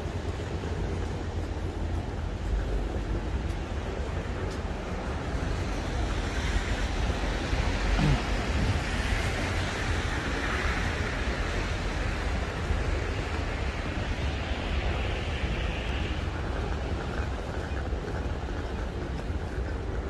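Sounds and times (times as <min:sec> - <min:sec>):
city street ambience: 0:00.0 - 0:20.0
wind rumbling on microphone: 0:00.0 - 0:20.0.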